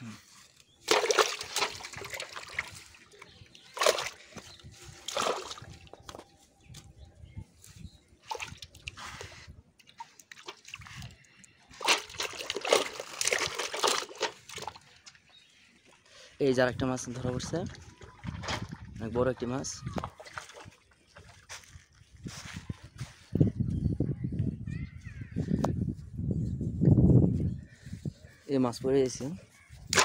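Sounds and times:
fish splashing in pot of water: 0:00.9 - 0:02.8, 0:11.8 - 0:14.8.

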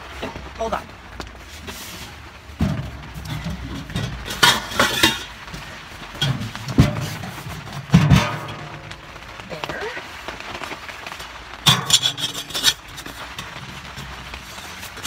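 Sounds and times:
metal pipes clanking and scraping: 0:01.7 - 0:09.3, 0:11.6 - 0:15.0.

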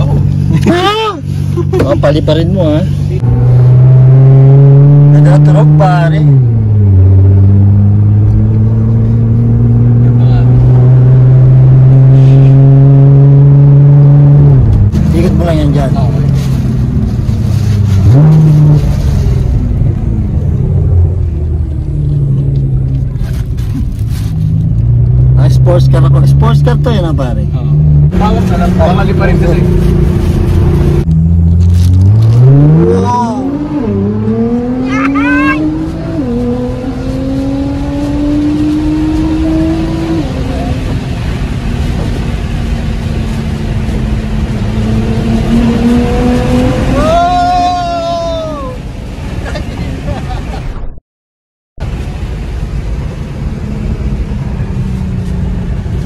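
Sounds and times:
car engine accelerating: 0:00.0 - 0:51.0.

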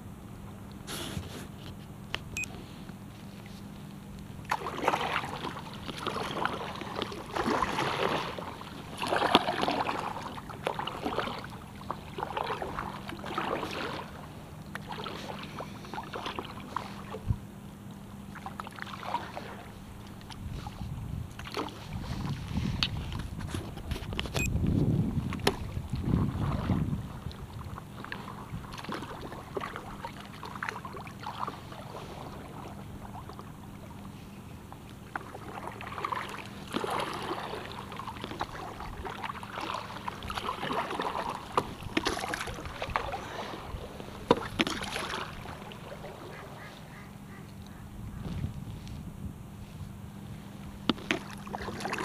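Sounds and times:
paddle strokes splashing water: 0:02.4 - 0:49.0, 0:49.6 - 0:52.0
wind buffeting microphone: 0:20.4 - 0:28.8, 0:47.7 - 0:50.0.

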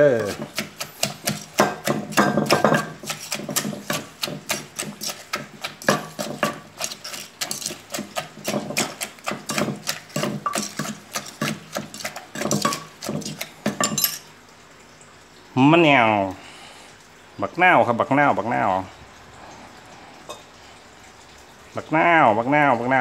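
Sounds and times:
wooden pestle pounding in mortar: 0:00.0 - 0:14.1.

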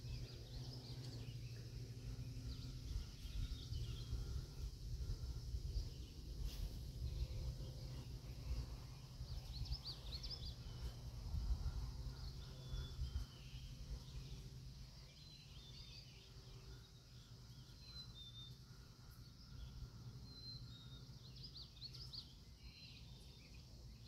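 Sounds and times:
steady low rumble: 0:00.0 - 0:15.0
small birds chirping: 0:00.0 - 0:24.0.

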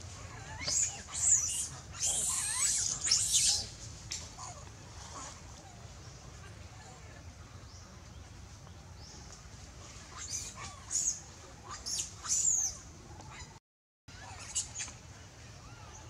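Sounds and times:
baby monkey squealing: 0:00.4 - 0:03.7, 0:10.2 - 0:13.5, 0:14.1 - 0:14.9.

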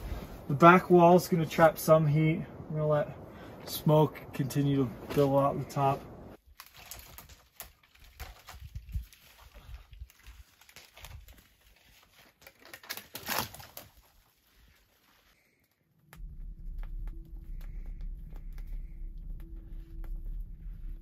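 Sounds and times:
twig fire crackling: 0:03.1 - 0:21.0
low rumble: 0:16.2 - 0:21.0.

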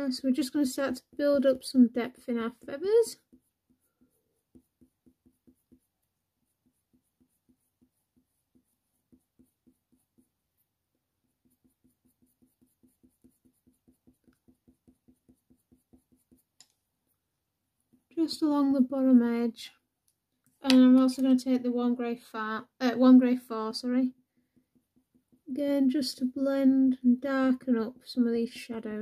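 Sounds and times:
pencil shading on paper: 0:00.2 - 0:16.7, 0:23.0 - 0:26.5.

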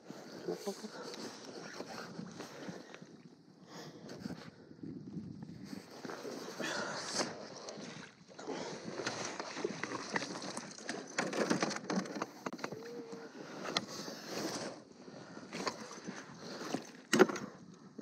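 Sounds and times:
water splashing: 0:07.2 - 0:11.2.

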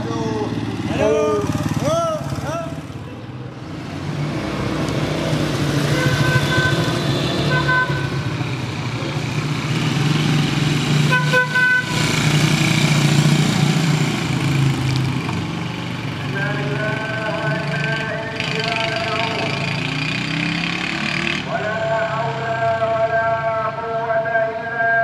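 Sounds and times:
small motorcycles riding past: 0:00.0 - 0:03.0, 0:03.6 - 0:21.8
vehicle horn toots: 0:05.9 - 0:08.3, 0:11.1 - 0:12.2.

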